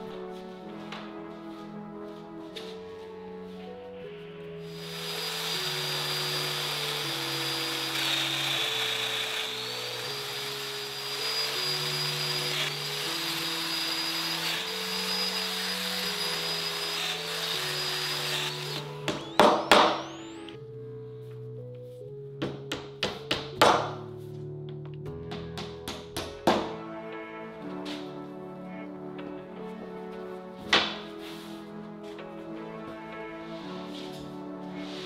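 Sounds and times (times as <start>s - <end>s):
background music: 0.0s - 35.0s
router whining while cutting wood: 4.7s - 20.6s.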